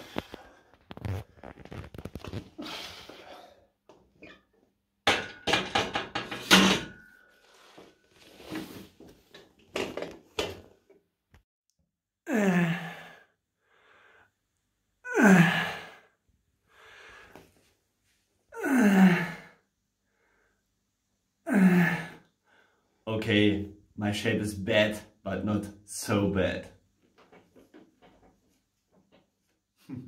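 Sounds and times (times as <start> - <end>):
man groaning with effort: 12.3 - 13.2, 15.1 - 16.0, 18.6 - 19.5, 21.5 - 22.2.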